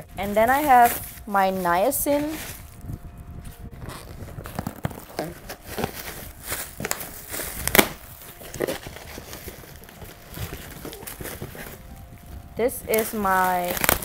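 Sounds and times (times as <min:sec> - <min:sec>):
packaging crinkling and rustling: 0:00.0 - 0:14.0.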